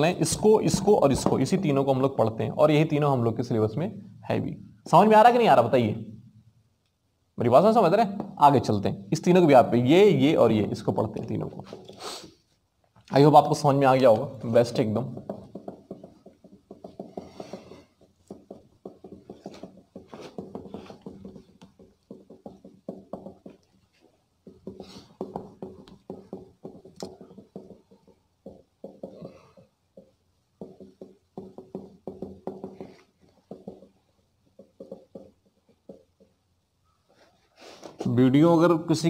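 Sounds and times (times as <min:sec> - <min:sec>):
cloth wiping whiteboard: 0:14.8 - 0:34.0.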